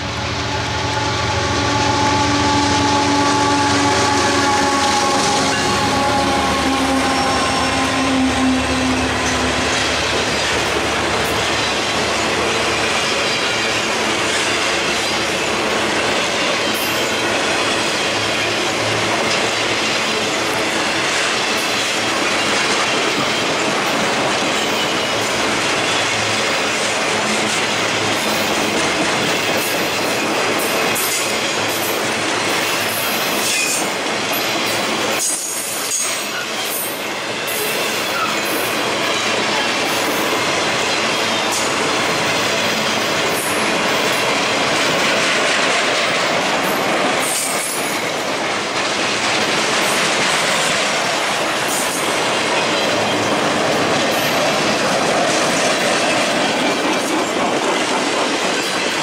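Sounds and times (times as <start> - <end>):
locomotive tones: 0.0 - 21.1
train wheels rumbling on rail: 0.0 - 59.0.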